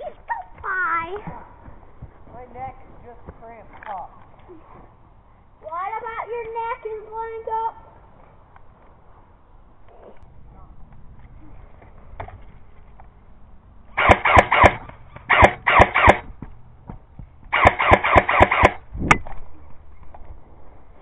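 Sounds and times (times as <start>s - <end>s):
airsoft rifle shots: 14.0s - 16.3s, 17.5s - 19.2s.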